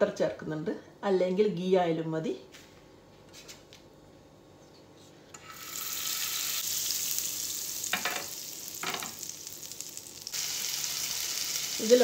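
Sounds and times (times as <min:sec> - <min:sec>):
butter sizzling in a pan: 0:05.4 - 0:12.0.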